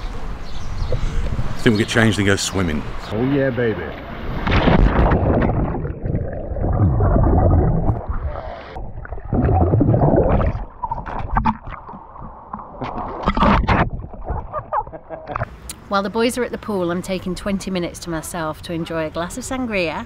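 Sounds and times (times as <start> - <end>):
water splashes: 2.5 - 15.5
muffled underwater bubbling: 4.8 - 15.4.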